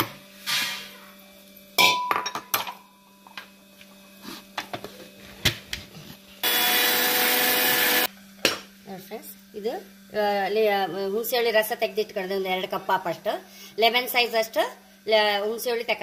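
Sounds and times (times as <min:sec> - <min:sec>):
electric grinder running: 0:06.4 - 0:08.1.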